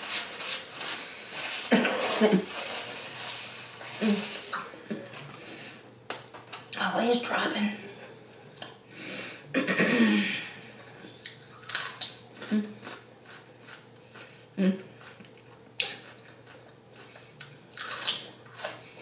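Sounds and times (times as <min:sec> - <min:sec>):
crunching bites: 0:11.3 - 0:12.2.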